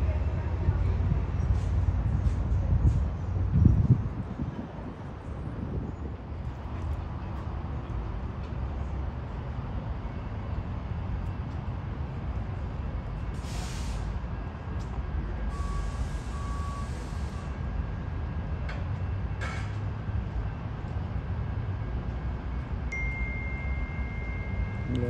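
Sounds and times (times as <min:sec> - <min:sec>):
train low rumble: 0:00.0 - 0:25.0
air hissing: 0:13.4 - 0:14.1
short beeps: 0:22.9 - 0:25.0.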